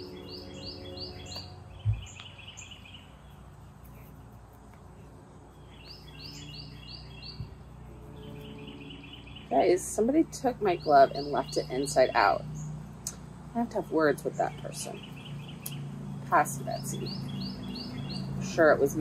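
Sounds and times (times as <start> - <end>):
rapid bird trill: 0.0 - 4.2, 5.5 - 9.9, 13.8 - 18.9
songbird singing: 0.0 - 19.0
steady low hum: 0.0 - 19.0
soft low thump: 1.8 - 2.1.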